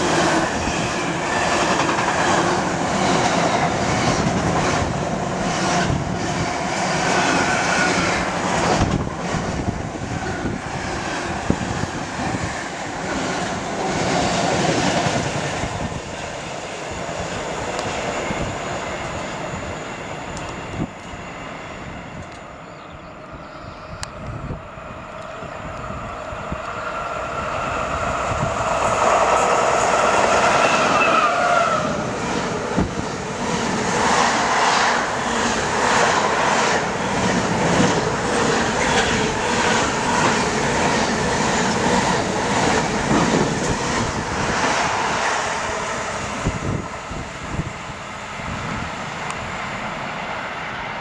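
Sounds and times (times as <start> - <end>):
locomotive passing: 24.0 - 51.0.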